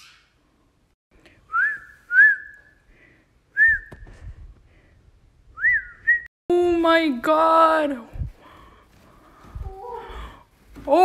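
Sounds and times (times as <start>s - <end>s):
person whistling sliding notes: 1.5s - 2.8s.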